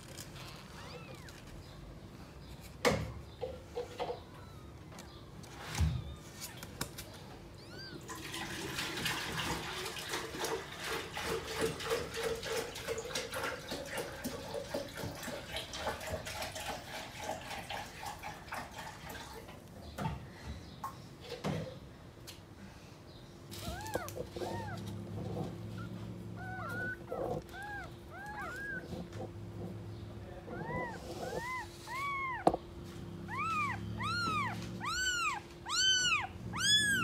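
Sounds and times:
kittens suckling: 0:23.5 - 0:37.0.

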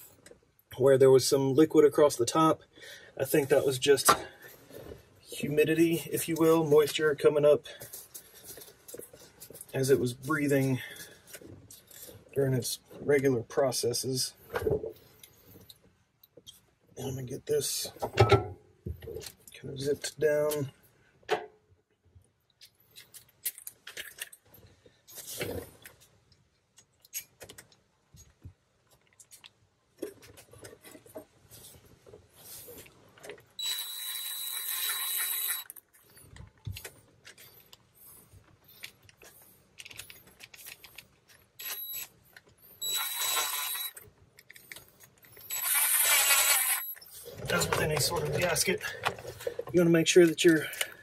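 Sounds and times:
cordless driver running: 0:42.8 - 0:43.9, 0:45.5 - 0:46.9.

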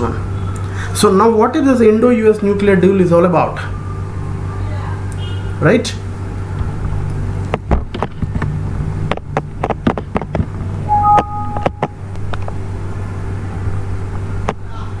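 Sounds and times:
two-tone electronic beep: 0:10.9 - 0:12.0.

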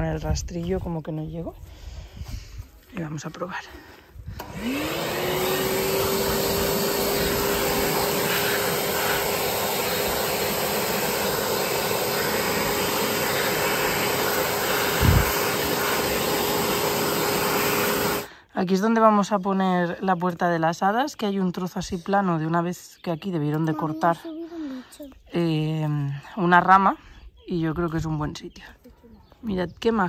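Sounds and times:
leaf blower motor whine: 0:04.3 - 0:18.3
rush of air: 0:14.8 - 0:15.8.

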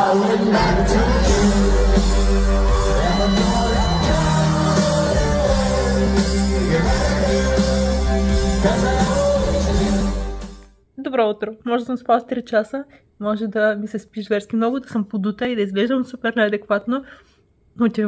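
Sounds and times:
crowd singing and yelling: 0:00.0 - 0:10.4
live rock band: 0:00.0 - 0:10.6.

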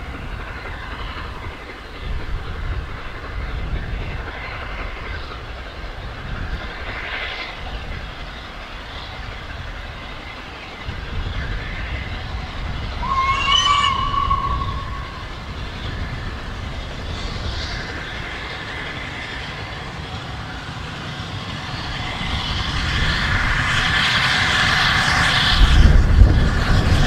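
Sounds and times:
steam train rumbling: 0:00.0 - 0:27.0
steam whistle: 0:13.0 - 0:15.5.

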